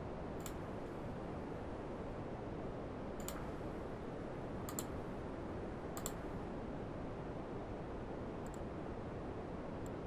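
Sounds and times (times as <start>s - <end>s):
room noise hiss: 0.0s - 10.0s
computer mouse clicks: 0.4s - 0.6s, 3.2s - 3.5s, 4.7s - 4.9s, 6.0s - 6.2s.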